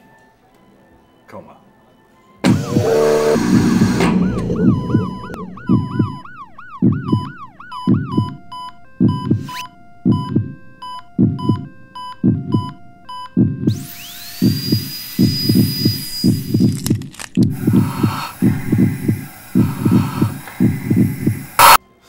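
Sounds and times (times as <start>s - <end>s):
ambulance siren yelping: 2.5s - 9.7s
heartbeat thumping: 2.5s - 21.8s
patient monitor beeps: 17.6s - 21.8s.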